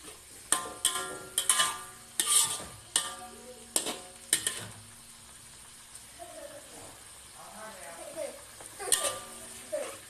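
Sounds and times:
metal ladle scraping a wok: 0.0s - 4.8s, 8.9s - 10.0s
wok ringing: 0.4s - 4.8s, 8.8s - 9.6s.

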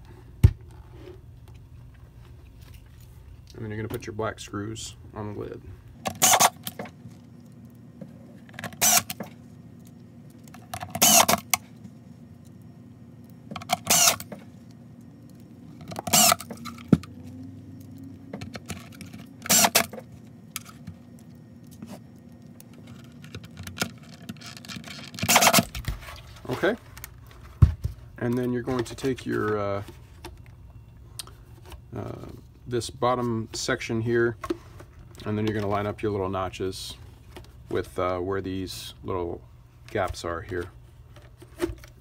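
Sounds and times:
power screwdriver whirring: 6.1s - 6.7s, 8.7s - 9.2s, 11.0s - 11.5s, 13.6s - 14.3s, 16.0s - 16.6s, 19.4s - 20.0s, 25.2s - 25.7s.

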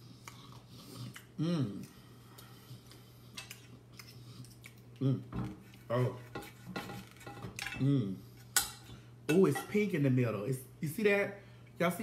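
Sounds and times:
person humming: 1.4s - 2.0s, 5.0s - 5.3s, 7.8s - 8.2s
cutlery scraping on a plate: 6.2s - 7.8s.

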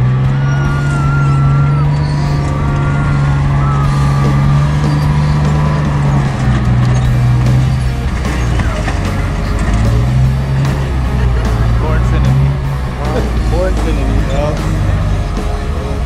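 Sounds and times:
thin wavering squeals: 0.0s - 10.0s
tank engine droning: 0.0s - 16.0s
car being crushed: 0.8s - 11.0s.

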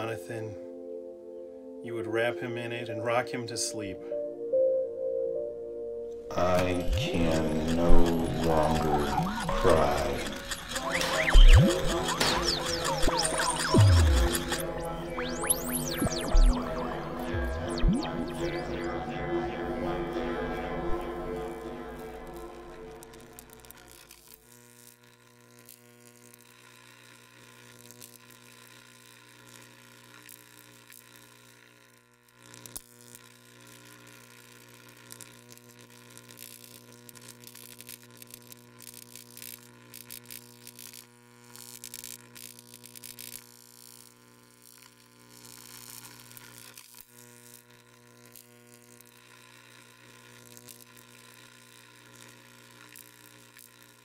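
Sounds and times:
crackling hiss: 6.3s - 26.4s.

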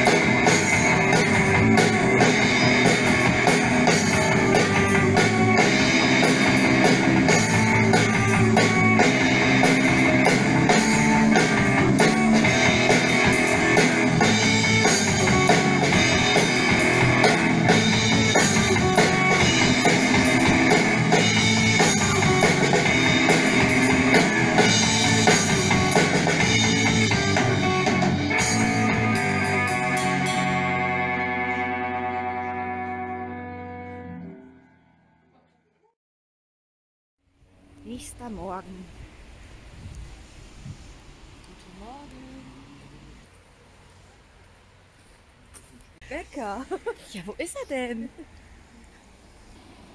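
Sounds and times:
rock music: 0.0s - 34.9s.

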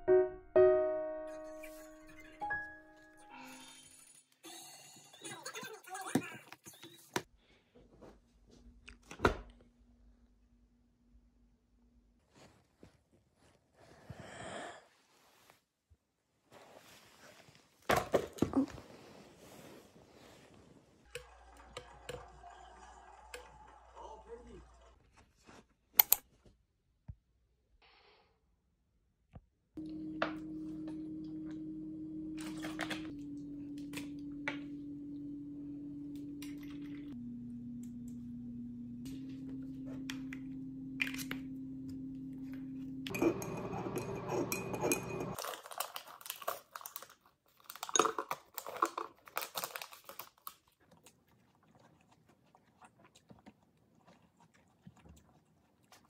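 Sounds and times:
low appliance hum: 29.8s - 45.4s
spoon clinking glass bowl: 43.1s - 45.4s.

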